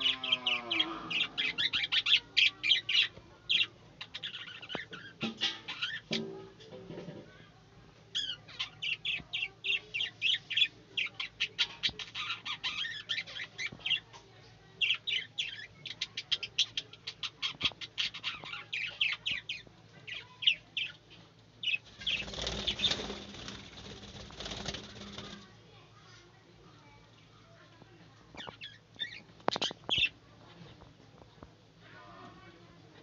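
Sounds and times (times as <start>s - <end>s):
wings flapping: 21.9s - 25.6s.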